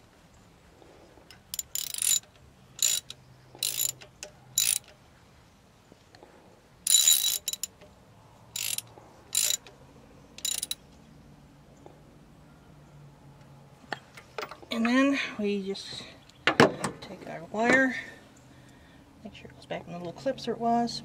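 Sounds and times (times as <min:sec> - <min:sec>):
socket ratchet clicking: 0:01.3 - 0:05.0, 0:06.9 - 0:07.9, 0:08.6 - 0:09.8, 0:10.4 - 0:10.8.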